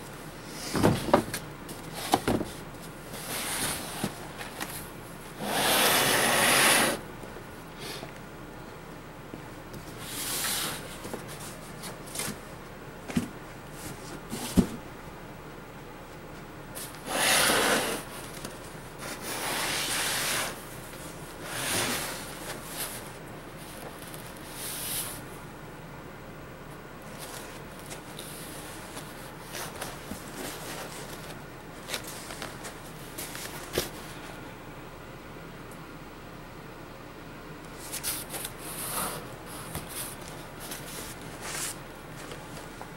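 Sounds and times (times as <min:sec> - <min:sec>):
cardboard rustling and scraping: 0:00.5 - 0:04.8, 0:16.8 - 0:25.2, 0:27.1 - 0:34.3, 0:37.8 - 0:42.9
cardboard box scraping: 0:05.4 - 0:07.0, 0:17.0 - 0:18.1, 0:19.1 - 0:20.6, 0:21.4 - 0:22.9.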